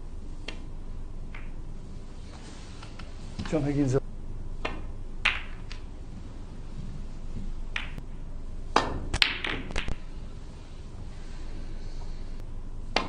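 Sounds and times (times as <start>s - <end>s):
snooker balls clicking: 0.4s - 0.7s, 1.3s - 1.6s, 4.6s - 5.9s, 7.7s - 8.0s, 8.7s - 10.0s
cue striking ball: 4.6s - 5.9s, 7.7s - 8.0s, 8.7s - 10.0s.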